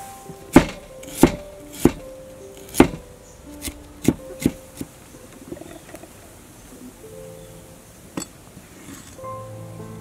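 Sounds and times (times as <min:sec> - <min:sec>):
soft background music: 0:00.0 - 0:10.0
cleaver chopping on wooden board: 0:00.5 - 0:04.9.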